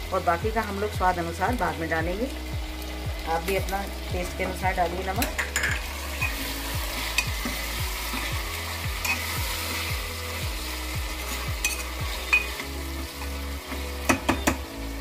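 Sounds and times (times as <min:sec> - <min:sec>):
onions sizzling in oil: 0:00.0 - 0:15.0
metal spoon scraping pot: 0:05.2 - 0:06.4, 0:11.6 - 0:12.6.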